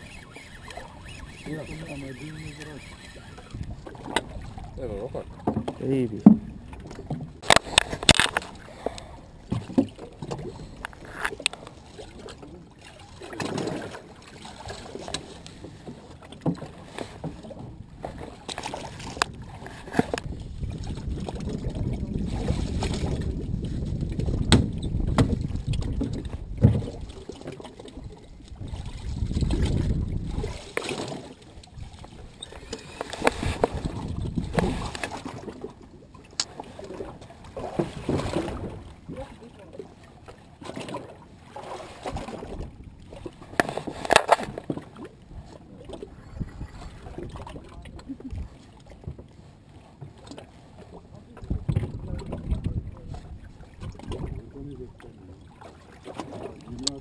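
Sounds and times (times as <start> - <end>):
wind rumbling on microphone: 0.0 - 12.2, 17.3 - 35.7, 45.3 - 49.2, 51.3 - 55.0
water slapping boat hull: 0.0 - 57.0
fishing gear clicks and knocks: 6.9 - 8.6, 9.5 - 11.8, 32.0 - 35.4, 43.5 - 44.8.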